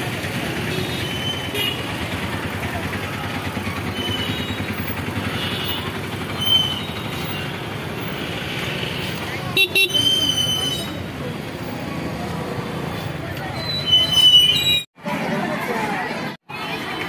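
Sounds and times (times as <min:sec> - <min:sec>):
crowd of people: 0:00.0 - 0:17.0
motor traffic: 0:00.0 - 0:17.0.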